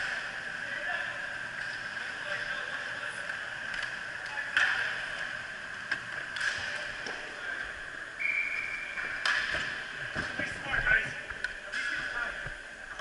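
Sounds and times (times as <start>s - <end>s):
arena noise: 0.0s - 13.0s
steady whistle: 8.2s - 9.2s.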